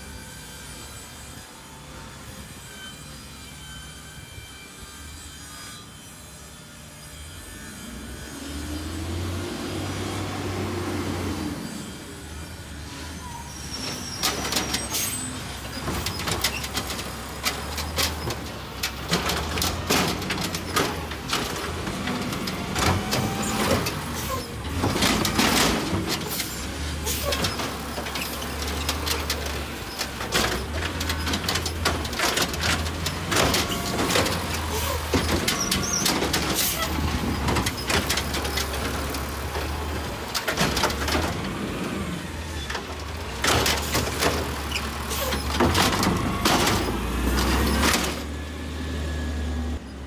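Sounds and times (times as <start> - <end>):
hydraulic arm lifting: 12.8 - 50.0
plastic carts clanking against metal: 14.2 - 41.7, 42.6 - 48.3
diesel truck engine running: 14.3 - 50.0.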